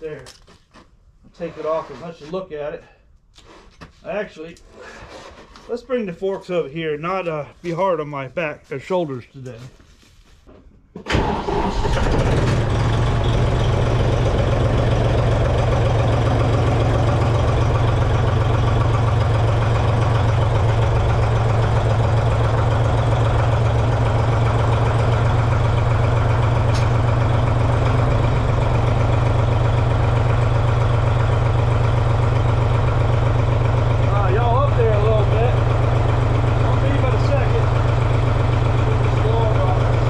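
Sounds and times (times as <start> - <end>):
tractor engine idling: 11.0 - 40.0.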